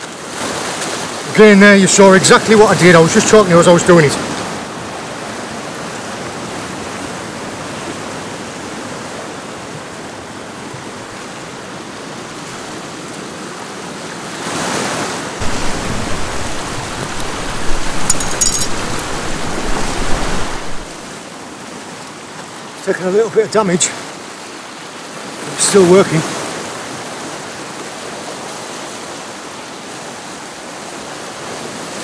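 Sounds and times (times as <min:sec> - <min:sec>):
sea washing against rocks: 0:14.2 - 0:21.2.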